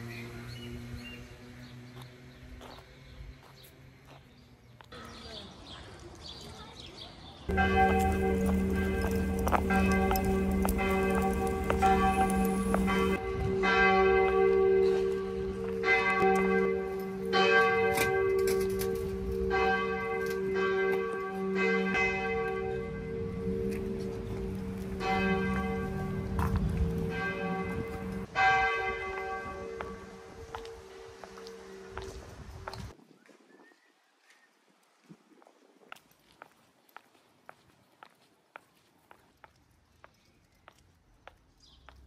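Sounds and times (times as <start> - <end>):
low bell hum: 7.5 - 32.0
church bells ringing: 7.5 - 32.9.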